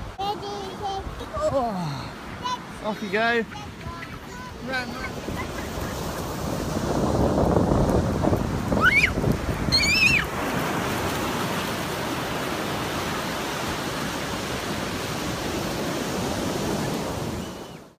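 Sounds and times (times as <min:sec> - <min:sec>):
ocean surf breaking: 0:00.0 - 0:18.0
high-pitched voice squeal: 0:08.8 - 0:10.3.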